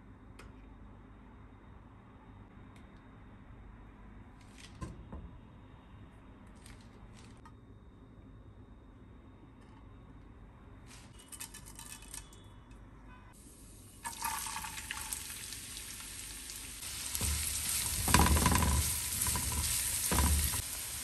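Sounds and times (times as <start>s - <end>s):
hot oil sizzling in a frying pan: 13.4s - 21.0s
spatula scraping onions in pan: 16.8s - 21.0s.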